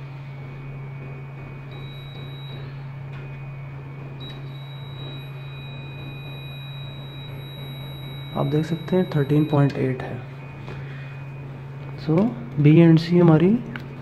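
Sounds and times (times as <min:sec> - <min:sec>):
low hum: 0:00.0 - 0:14.0
high electronic beep: 0:01.7 - 0:03.4, 0:04.2 - 0:12.1.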